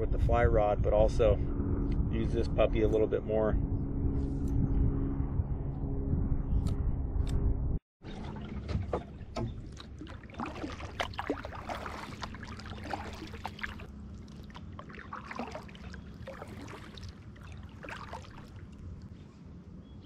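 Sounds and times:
kayak paddle splashing water: 8.0s - 19.1s.

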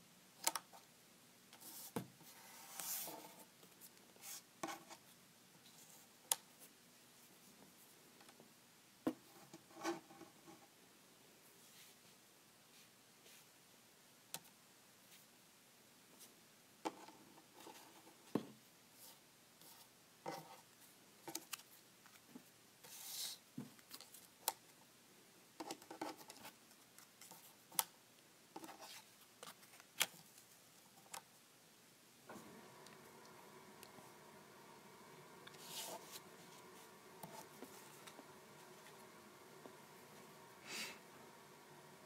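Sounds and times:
paper sliding: 32.3s - 42.0s.

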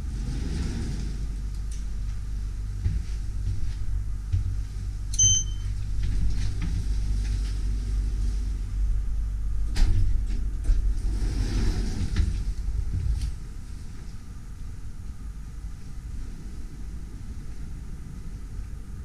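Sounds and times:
lift low rumble: 0.0s - 19.0s
short electronic beep: 5.2s - 5.7s.

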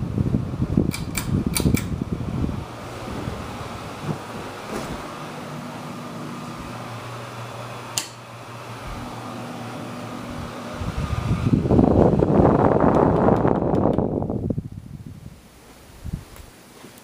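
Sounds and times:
ceiling fan whoosh: 0.0s - 17.0s
faint motor hum: 0.0s - 17.0s
sharp click: 0.9s - 1.9s
rush of air: 10.3s - 16.4s.

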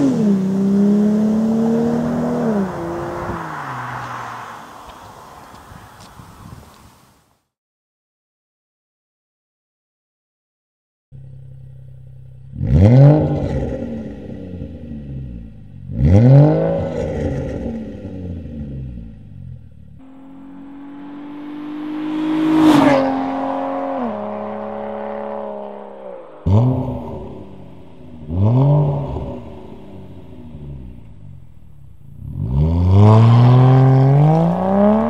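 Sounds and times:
car driving past: 0.0s - 6.2s, 20.0s - 35.0s
car engine revving from idle: 11.2s - 25.8s, 26.4s - 35.0s.

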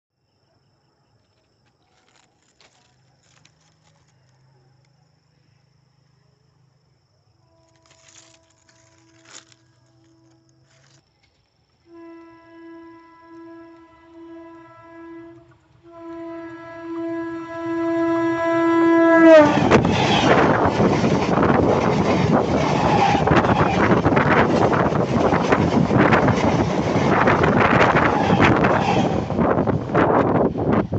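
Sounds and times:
train horn: 7.4s - 11.0s, 11.8s - 20.8s, 22.6s - 24.3s, 27.2s - 29.7s
train carriages rushing past: 19.1s - 30.9s
wheels clacking on rail: 19.3s - 30.9s.

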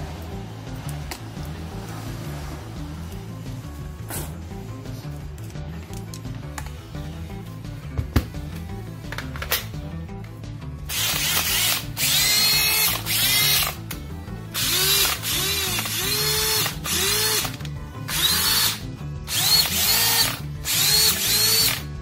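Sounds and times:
cordless drill motor whining: 10.9s - 13.8s, 14.6s - 21.9s.

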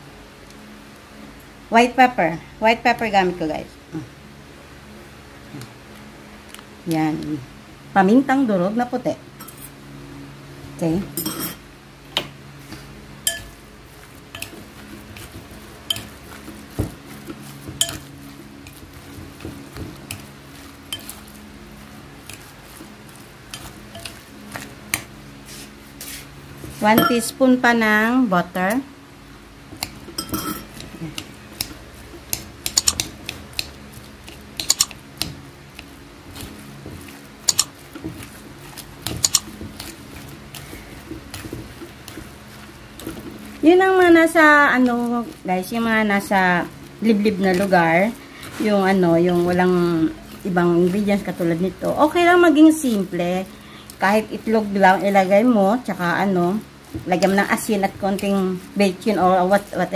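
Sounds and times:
metal spoon clinking on ceramic bowl: 11.2s - 11.6s, 13.3s - 13.6s, 15.9s - 16.1s, 17.8s - 18.0s, 27.0s - 27.2s, 30.1s - 30.8s.

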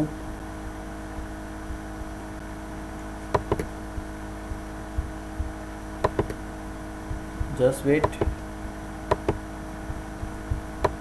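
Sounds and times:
electrical hum: 0.0s - 11.0s
computer mouse clicks: 3.4s - 3.7s, 6.0s - 6.4s, 9.1s - 9.4s.

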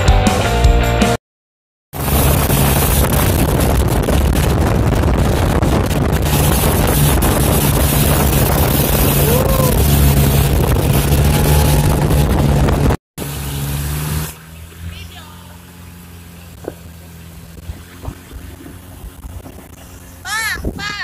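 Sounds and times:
boat engine humming: 1.9s - 21.0s
wind buffeting microphone: 2.0s - 13.0s, 16.2s - 21.0s
water rushing past hull: 2.0s - 21.0s.

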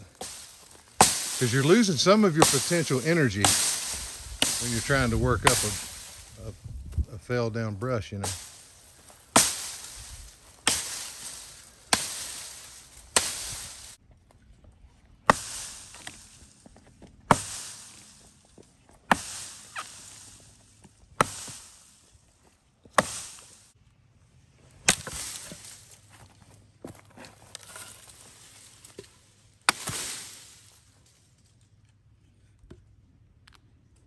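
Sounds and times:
blade chopping tree limbs: 0.0s - 6.5s, 8.1s - 14.0s, 15.3s - 22.2s, 22.8s - 23.8s, 24.8s - 26.3s, 27.6s - 30.9s
branches rustling: 0.0s - 32.5s.

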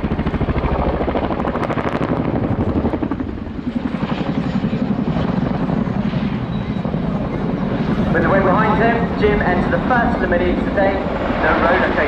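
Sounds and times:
helicopter rotor blade chop: 0.0s - 12.0s.

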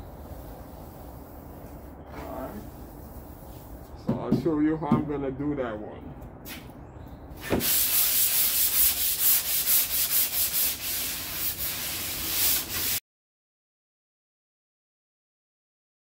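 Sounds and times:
sandpaper scratching on filler: 0.0s - 3.9s, 7.4s - 13.0s.

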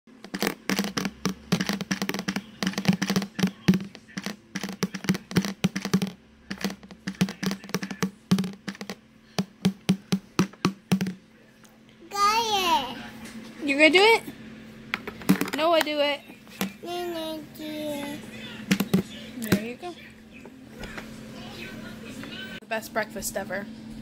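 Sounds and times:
toy drum hollow thuds: 0.2s - 11.2s.

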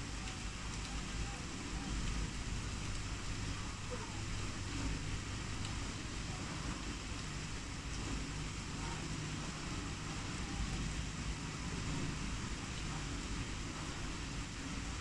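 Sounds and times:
heavy rain falling: 0.0s - 15.0s.

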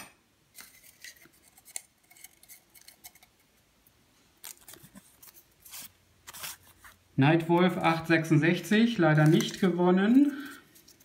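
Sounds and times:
paper slips rustling: 4.5s - 11.0s.

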